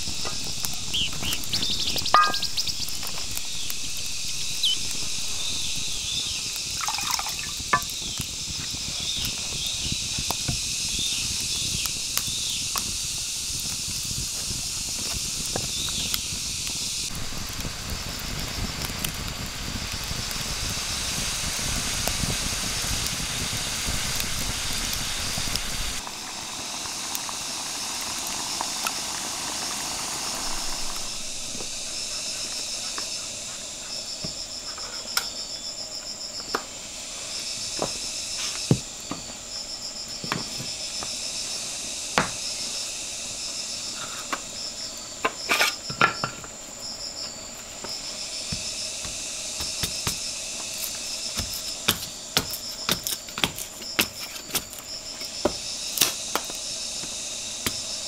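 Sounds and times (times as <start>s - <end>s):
campfire crackling: 0.0s - 58.0s
insect drone: 0.0s - 58.0s
bird chirps: 0.8s - 6.5s.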